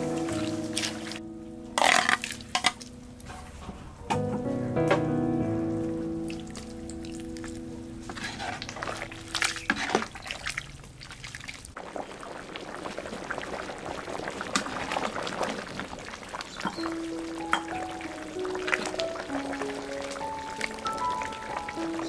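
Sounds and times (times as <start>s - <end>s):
background music: 0.0s - 10.0s, 16.8s - 22.0s
metal ladle stirring and clinking: 1.8s - 3.4s, 8.1s - 10.6s
soup bubbling at a boil: 6.3s - 22.0s.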